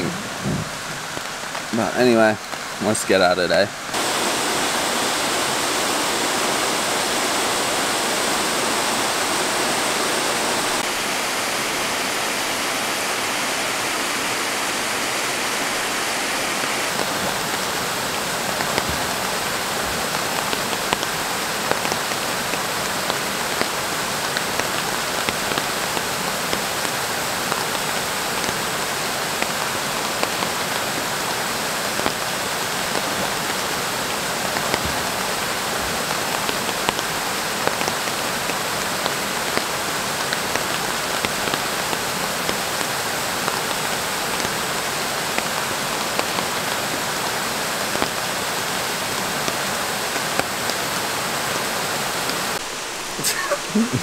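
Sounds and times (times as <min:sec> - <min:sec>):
rain hissing: 0:00.0 - 0:54.0
running water: 0:00.0 - 0:54.0
drops clicking on water: 0:16.9 - 0:28.6.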